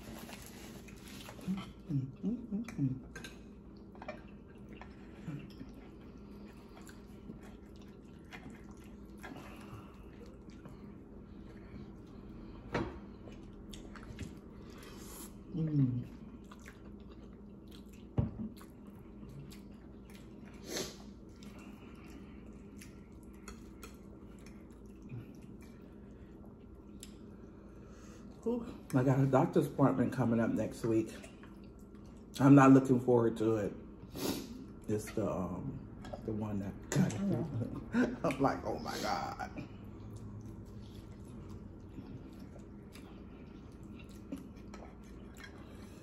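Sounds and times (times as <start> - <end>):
chewing: 0.0 - 29.0, 39.5 - 46.0
steady low hum: 0.0 - 46.0.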